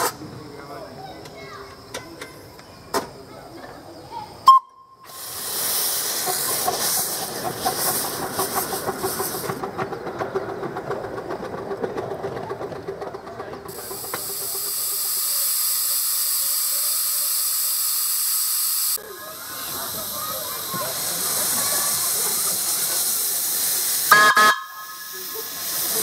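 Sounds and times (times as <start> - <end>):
steam hissing: 0.0 - 0.2, 4.4 - 9.8, 13.6 - 26.0
steam locomotive chuffing: 4.4 - 26.0.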